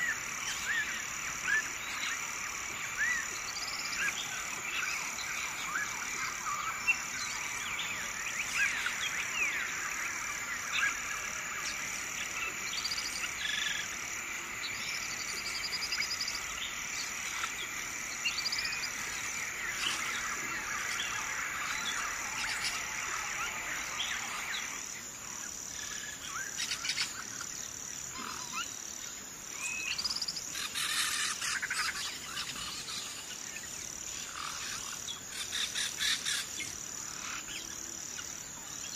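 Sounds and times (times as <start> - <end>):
birds chirping: 0.0 - 28.7
insect trill: 0.0 - 38.9.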